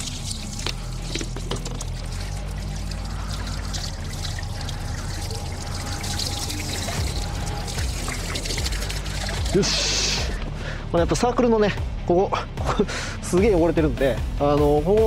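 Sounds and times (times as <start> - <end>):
water pouring from garden hose: 0.0 - 10.4.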